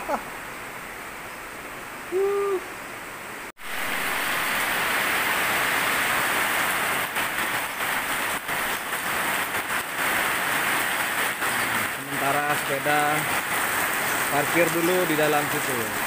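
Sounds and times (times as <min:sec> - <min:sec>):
heavy rain on a metal roof: 0:03.5 - 0:16.0.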